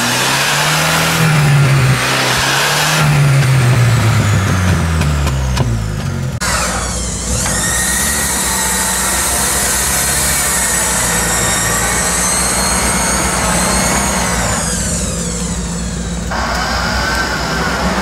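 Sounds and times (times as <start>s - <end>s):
engine running: 0.0s - 18.0s
winch whine: 6.4s - 18.0s.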